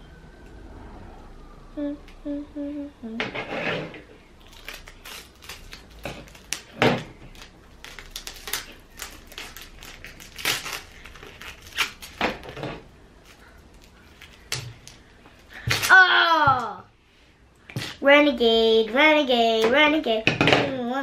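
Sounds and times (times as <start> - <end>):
tape and paper crinkling: 4.4 - 16.1.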